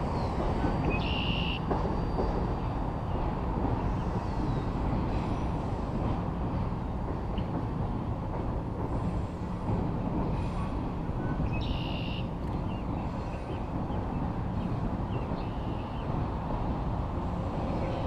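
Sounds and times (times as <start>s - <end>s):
freight train rumbling on bridge: 0.0s - 18.0s.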